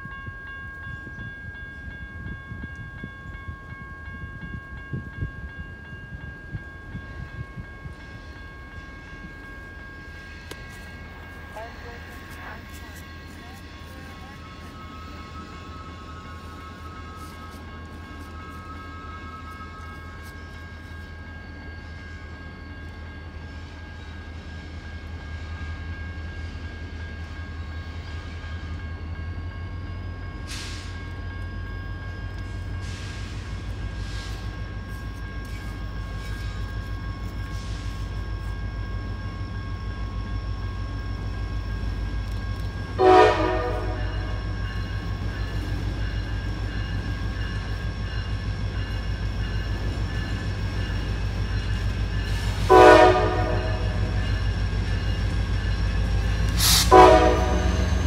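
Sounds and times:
diesel locomotive engine rumble: 0.0s - 58.0s
loud train horn blast: 43.0s - 44.4s, 52.6s - 54.0s, 56.6s - 58.0s.

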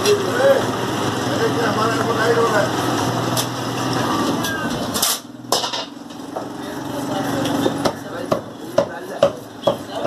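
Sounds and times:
cleaver chopping meat on wood: 7.8s - 10.0s.

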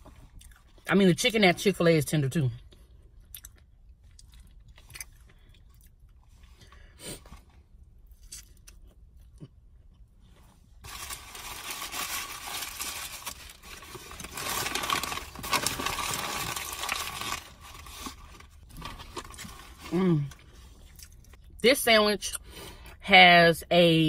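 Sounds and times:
paper wrapper crinkling: 10.8s - 19.9s.

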